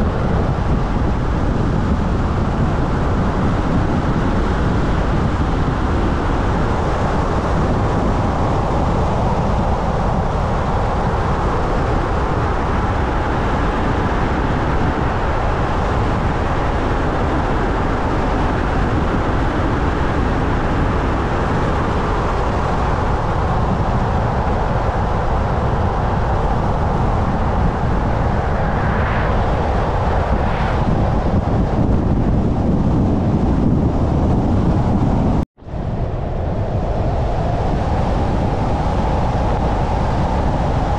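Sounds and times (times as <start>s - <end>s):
car road and tyre noise: 0.0s - 40.9s.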